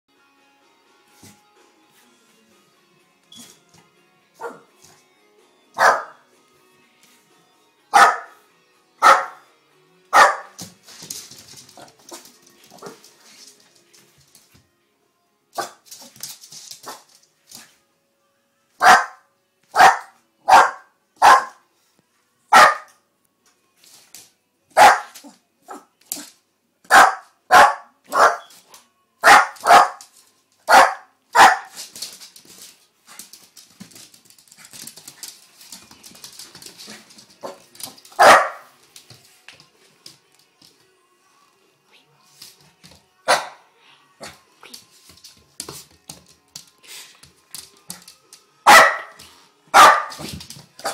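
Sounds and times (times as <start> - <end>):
small dog barking: 4.4 - 4.7, 5.8 - 6.2, 7.9 - 8.4, 9.0 - 9.4, 10.1 - 10.6, 18.8 - 21.6, 22.5 - 23.0, 24.8 - 25.9, 26.9 - 28.5, 29.2 - 30.0, 30.7 - 31.8, 38.2 - 38.7, 43.3 - 43.6, 48.7 - 50.2.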